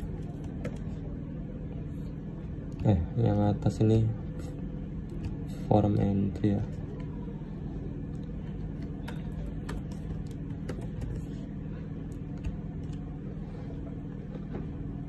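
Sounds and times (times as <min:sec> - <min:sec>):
computer keys clicking: 0:00.0 - 0:00.9, 0:08.1 - 0:11.3, 0:12.1 - 0:13.1
steady low hum: 0:00.0 - 0:15.0.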